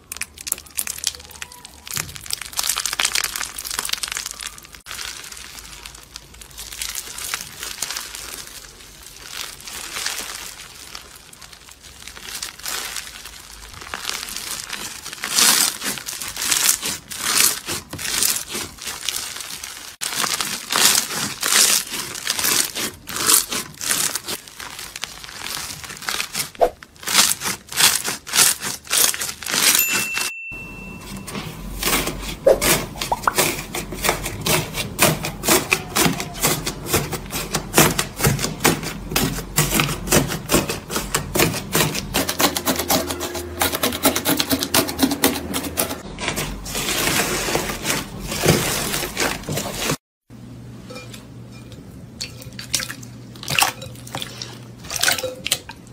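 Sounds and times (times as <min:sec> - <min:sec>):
crunchy slime crackling: 0:00.0 - 0:30.0.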